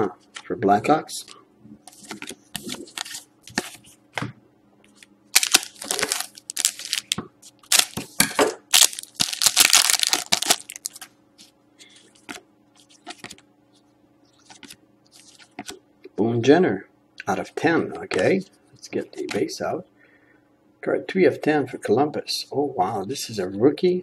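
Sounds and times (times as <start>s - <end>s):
cards being shuffled: 1.9s - 4.0s, 4.9s - 13.4s, 14.4s - 15.8s
foil wrapper crinkling: 5.3s - 8.1s, 8.7s - 11.1s.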